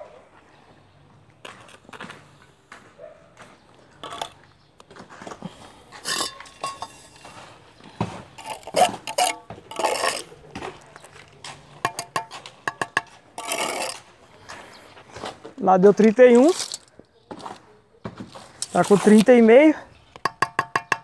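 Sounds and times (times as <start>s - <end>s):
steel clinking on brick: 6.0s - 11.1s, 11.8s - 14.1s, 20.2s - 21.0s
trowel scraping wet mortar: 6.0s - 14.2s, 18.3s - 19.5s.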